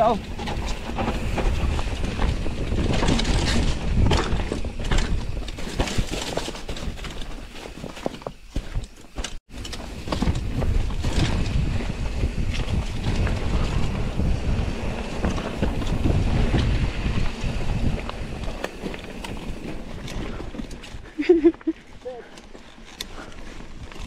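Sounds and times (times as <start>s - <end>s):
wind buffeting microphone: 0.0s - 7.0s, 9.5s - 21.2s
sharp knocks and rattles: 0.2s - 11.7s.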